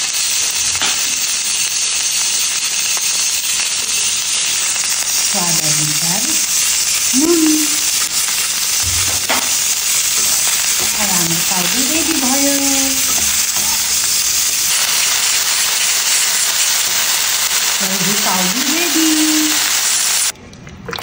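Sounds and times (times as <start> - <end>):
vegetables sizzling in hot oil: 0.0 - 20.4
metal spatula stirring: 7.9 - 14.8.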